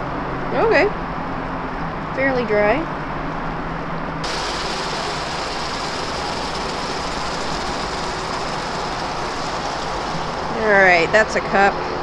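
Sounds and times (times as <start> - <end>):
onions and garlic sizzling: 4.2 - 10.8.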